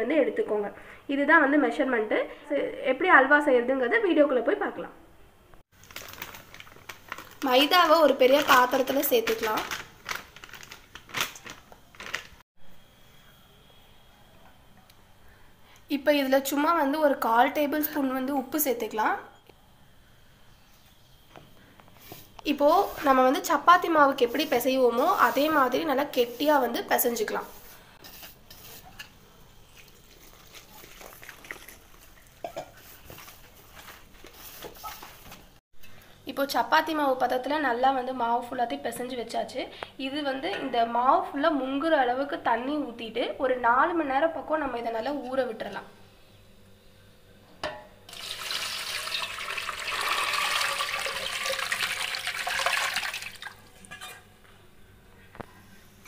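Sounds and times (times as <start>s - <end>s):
water pouring into metal pot: 48.1s - 54.0s.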